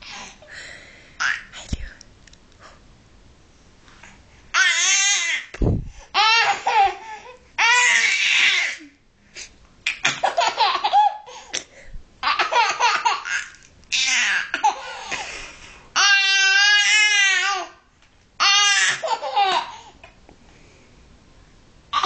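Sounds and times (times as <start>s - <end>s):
baby laughing: 6.2s - 8.9s, 9.9s - 11.6s, 12.2s - 15.2s, 18.4s - 19.9s.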